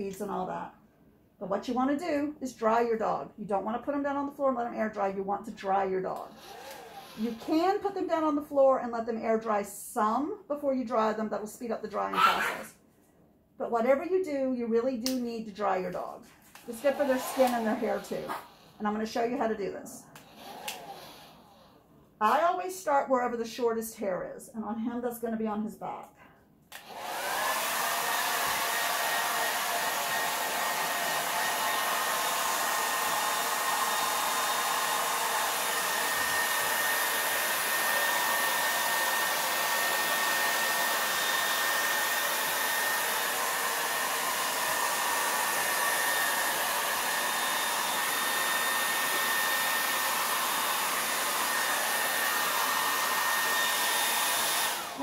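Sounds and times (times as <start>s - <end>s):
hair dryer running: 6.2s - 7.9s, 16.0s - 19.2s, 20.2s - 21.7s, 26.7s - 55.0s.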